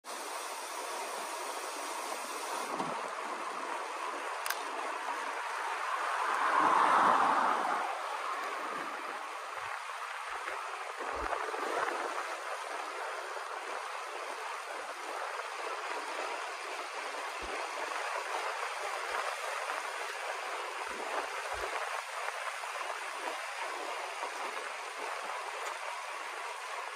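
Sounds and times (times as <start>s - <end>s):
road noise: 0.0s - 26.9s
wind rushing over microphone: 4.7s - 14.1s.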